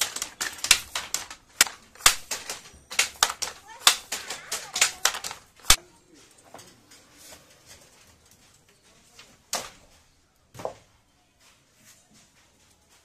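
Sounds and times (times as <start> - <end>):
wooden handloom knocking: 0.0 - 5.8.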